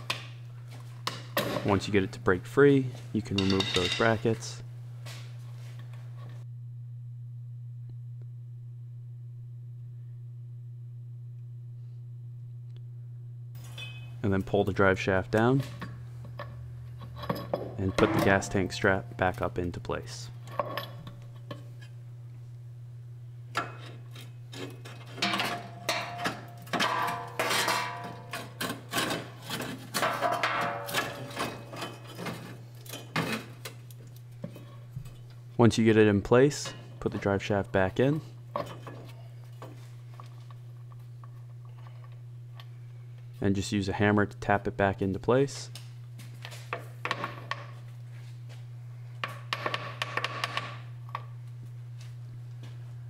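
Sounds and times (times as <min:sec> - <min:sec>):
steady low hum: 0:00.0 - 0:53.0
metal clanks and scraping: 0:03.2 - 0:04.4, 0:15.4 - 0:18.9, 0:23.6 - 0:33.6.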